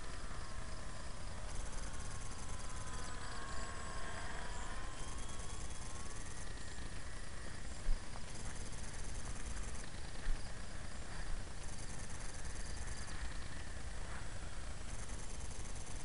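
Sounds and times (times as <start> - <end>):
distant electric motor whine: 0.0 - 16.0.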